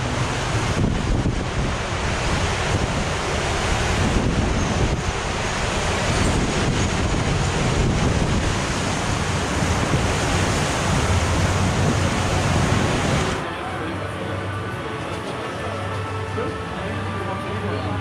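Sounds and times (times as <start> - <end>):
wind buffeting microphone: 0.0 - 13.4
water rushing: 0.0 - 18.0.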